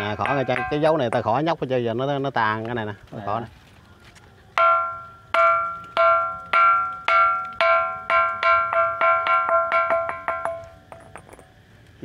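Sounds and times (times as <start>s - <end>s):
stone striking ringing rock: 0.0s - 1.5s, 4.6s - 11.6s.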